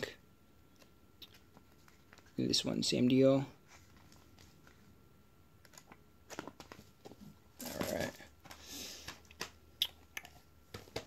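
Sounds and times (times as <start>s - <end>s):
paper rustle: 1.3s - 2.4s, 3.6s - 4.9s
page flips: 3.7s - 4.9s, 5.6s - 9.6s.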